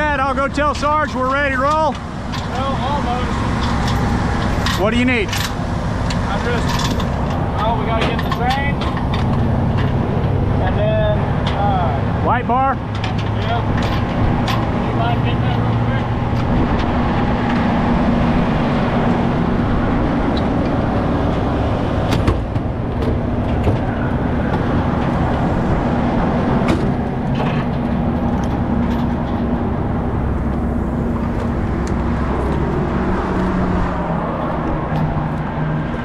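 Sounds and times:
diesel engine idling: 0:00.0 - 0:36.0
sharp clicks and knocks: 0:12.9 - 0:15.0, 0:20.3 - 0:25.4.

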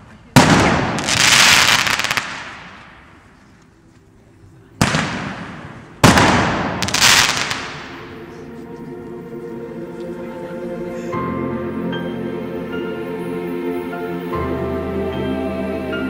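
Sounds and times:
firework crackling: 0:00.2 - 0:03.4, 0:04.8 - 0:08.4
firework bursting bang: 0:00.4 - 0:03.2, 0:04.8 - 0:08.1
firework shell launch report: 0:04.8 - 0:08.1.

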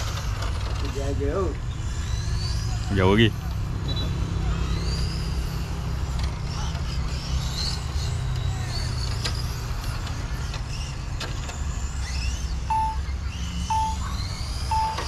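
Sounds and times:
faint high chirps: 0:12.6 - 0:15.0
short electronic beep: 0:12.7 - 0:13.0, 0:13.7 - 0:14.0, 0:14.7 - 0:15.0.

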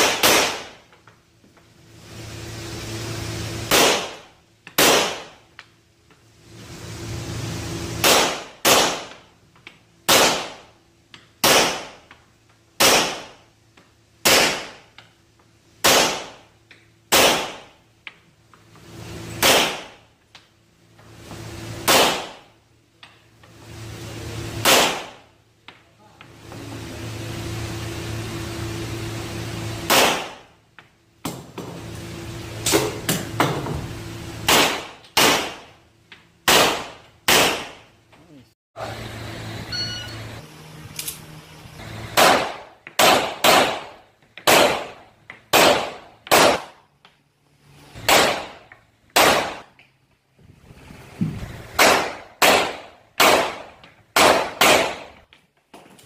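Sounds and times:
pistol shots indoors: 0:00.0 - 0:00.8, 0:03.7 - 0:05.4, 0:08.0 - 0:09.2, 0:10.0 - 0:10.7, 0:11.4 - 0:12.1, 0:12.8 - 0:13.4, 0:14.2 - 0:14.8, 0:15.8 - 0:16.4, 0:17.1 - 0:17.7, 0:19.4 - 0:20.0, 0:21.8 - 0:22.5, 0:24.6 - 0:25.2, 0:29.9 - 0:30.5, 0:34.5 - 0:35.7, 0:36.4 - 0:37.9, 0:42.2 - 0:46.8, 0:48.0 - 0:49.7, 0:51.8 - 0:55.2
pistol shots echoing indoors: 0:04.8 - 0:05.3, 0:10.0 - 0:10.7, 0:42.2 - 0:46.8, 0:49.2 - 0:49.7, 0:51.8 - 0:55.2.

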